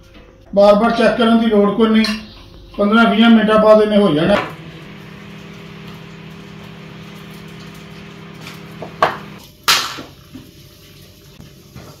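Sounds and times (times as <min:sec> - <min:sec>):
steady low hum: 0:04.4 - 0:09.4.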